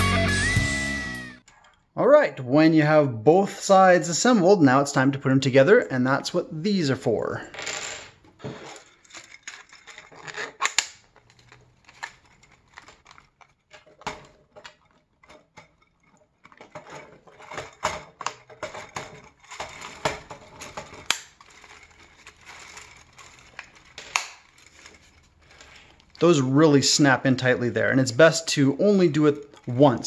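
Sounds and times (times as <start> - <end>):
plastic parts clattering: 7.4 - 30.0
plastic pieces snapping into place: 10.3 - 14.8, 23.5 - 24.6.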